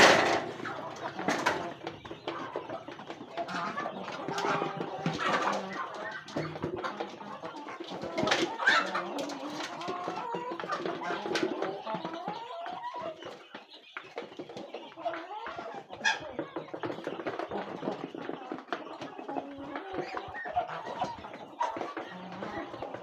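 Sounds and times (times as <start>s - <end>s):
chickens clucking: 0.0s - 23.0s.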